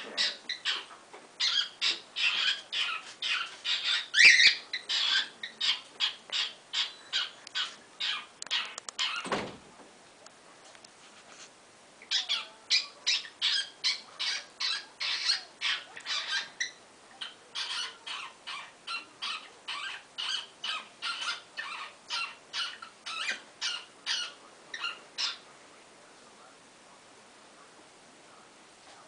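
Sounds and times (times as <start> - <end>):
cockatiel harsh hissy calls: 0.2 - 9.2, 12.1 - 25.4.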